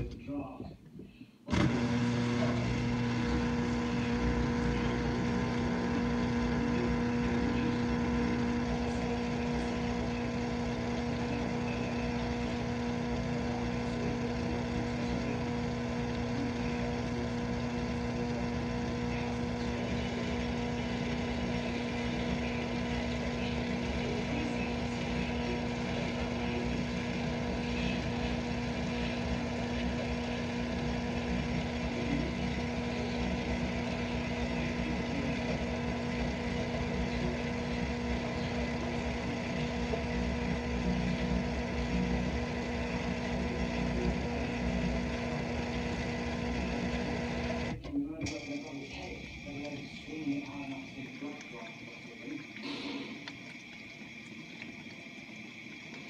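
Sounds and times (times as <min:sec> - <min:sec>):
dishwasher motor hum: 0:01.5 - 0:56.0
water hissing: 0:48.4 - 0:56.0.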